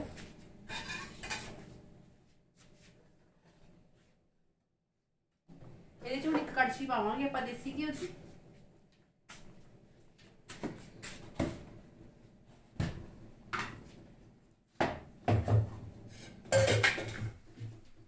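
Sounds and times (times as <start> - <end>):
steel utensils knocking and clinking: 16.5 - 17.3.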